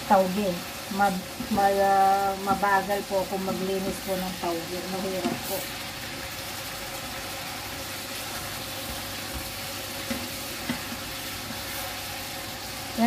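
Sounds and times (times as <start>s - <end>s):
food sizzling in a frying pan: 0.0s - 13.0s
wooden spatula stirring: 8.1s - 12.1s.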